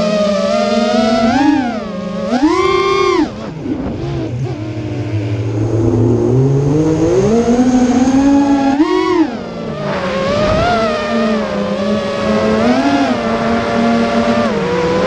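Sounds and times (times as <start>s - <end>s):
drone motors whining: 0.0s - 15.0s
rush of air: 3.8s - 8.2s.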